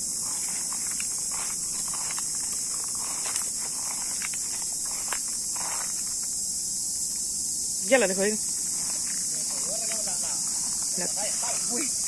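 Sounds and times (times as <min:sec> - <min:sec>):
high-pitched insect chorus: 0:00.0 - 0:12.0
soft rustling: 0:00.1 - 0:06.3.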